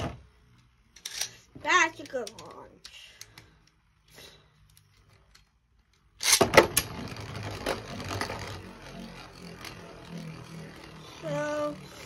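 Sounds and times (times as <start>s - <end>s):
spinning top landing clatter: 6.0s - 12.0s
spinning top ripped from launcher: 6.2s - 11.8s
spinning top scraping on plastic: 6.2s - 12.0s.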